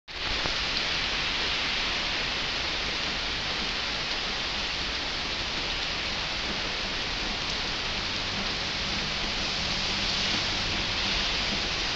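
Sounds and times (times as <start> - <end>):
heavy rain on paving and roofs: 0.1 - 11.9.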